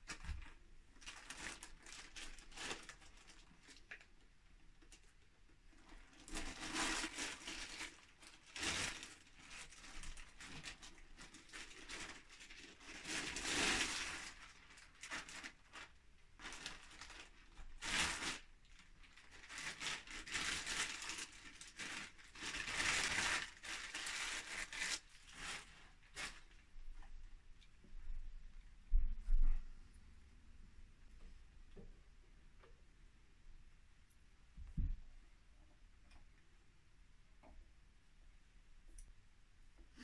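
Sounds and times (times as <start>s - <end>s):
packing material crinkling: 0.0s - 27.0s.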